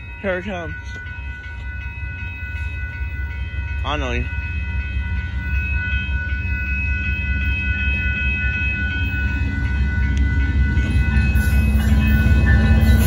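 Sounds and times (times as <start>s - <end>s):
diesel locomotive rumble: 0.0s - 13.0s
railroad crossing bell ringing: 0.0s - 13.0s.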